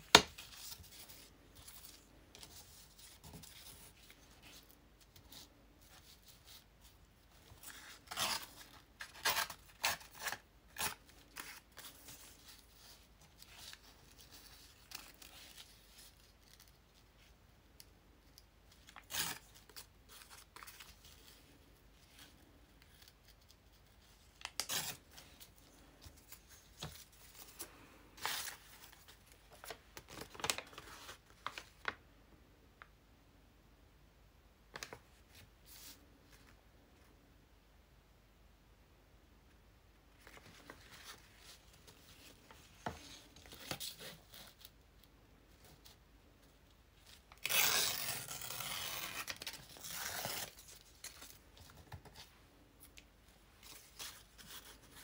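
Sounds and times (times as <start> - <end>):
paper tearing: 47.3 - 50.8.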